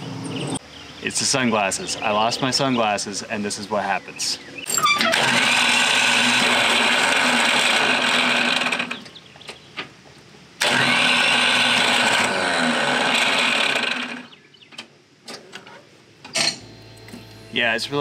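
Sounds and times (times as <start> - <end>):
starter motor whirring: 4.7 - 9.2, 10.6 - 14.3.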